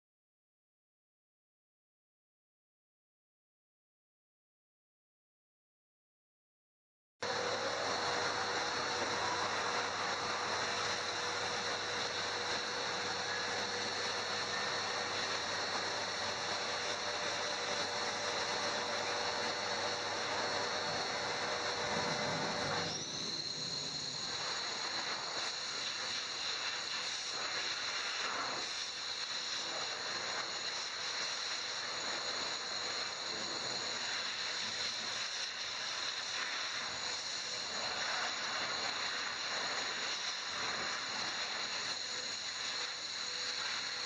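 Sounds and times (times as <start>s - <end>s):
pet dryer blowing air: 7.2s - 44.0s.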